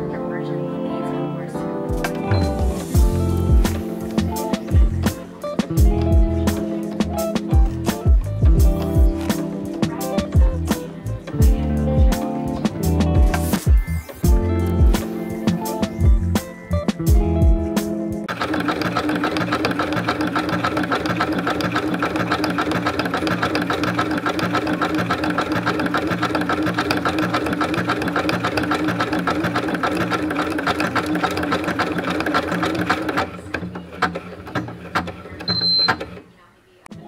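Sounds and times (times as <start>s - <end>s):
sewing machine stitching: 18.3s - 36.3s.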